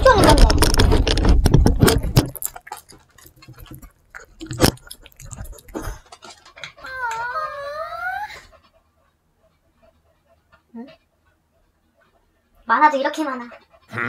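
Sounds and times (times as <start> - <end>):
dog licking a plate: 1.9 - 6.9.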